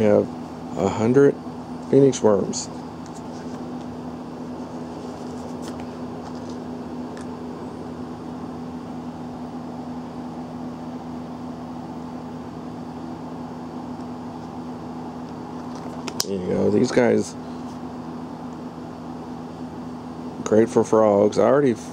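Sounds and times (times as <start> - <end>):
machine hum: 0.0 - 21.9.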